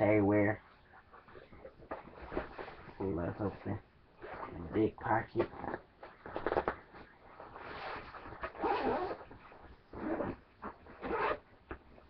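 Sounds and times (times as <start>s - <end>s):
bag fabric rustling: 5.6s - 11.4s
backpack zipper opening: 7.6s - 9.3s, 9.9s - 11.4s.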